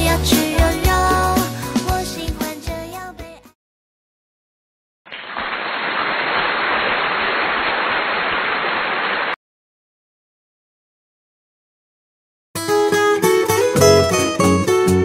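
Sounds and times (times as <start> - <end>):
music: 0.0 - 3.6, 12.6 - 15.0.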